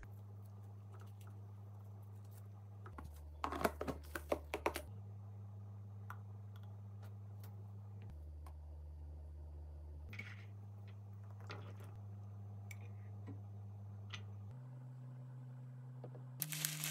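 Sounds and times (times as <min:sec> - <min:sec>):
steady low hum: 0:04.8 - 0:16.9.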